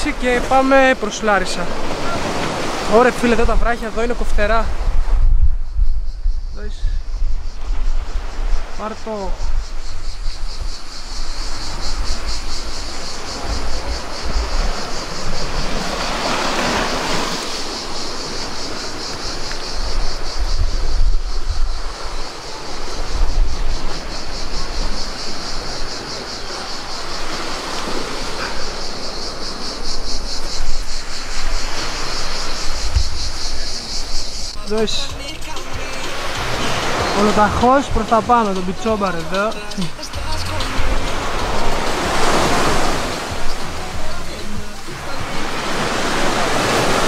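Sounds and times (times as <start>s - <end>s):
sea waves on rocky shore: 0.0s - 5.2s, 7.6s - 47.0s
wind gusting on microphone: 0.0s - 34.9s.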